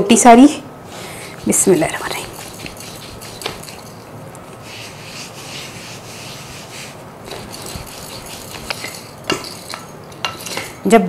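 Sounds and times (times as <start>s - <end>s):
rolling pin swishing on dough: 0.9s - 10.8s.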